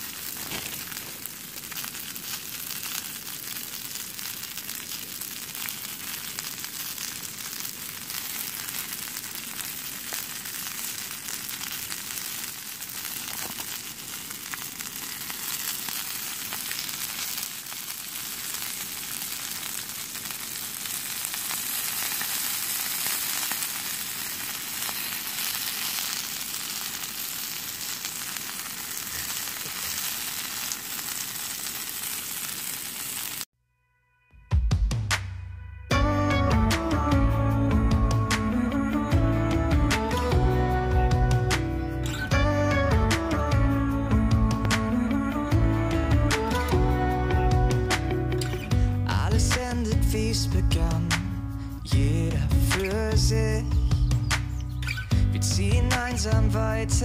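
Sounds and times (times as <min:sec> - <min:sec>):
shrimp sizzling in a frying pan: 0:00.0 - 0:33.5, 0:46.4 - 0:48.9.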